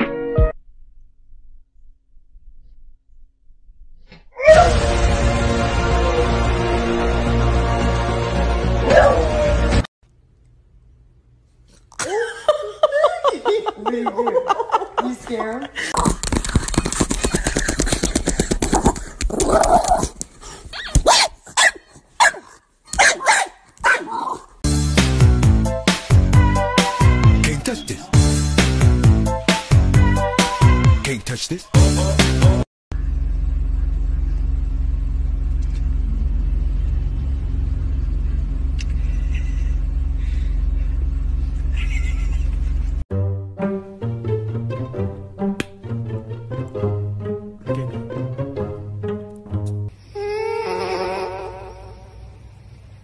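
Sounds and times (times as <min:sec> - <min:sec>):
dog barking: 0:21.0 - 0:24.4
car engine and road noise: 0:32.9 - 0:43.0
plucked cello music: 0:43.1 - 0:49.9.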